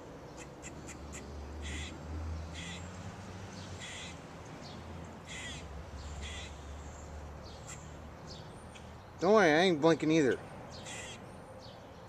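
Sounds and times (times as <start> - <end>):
scratchy bird calls: 0.3 - 2.9, 3.8 - 4.2, 5.2 - 9.0, 10.7 - 11.3.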